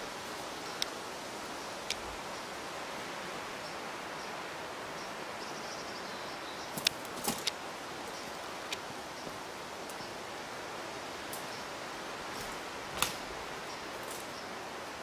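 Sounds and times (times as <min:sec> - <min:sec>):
steady hiss: 0:00.0 - 0:15.0
twigs snapping under hooves: 0:06.8 - 0:07.6, 0:12.3 - 0:13.3.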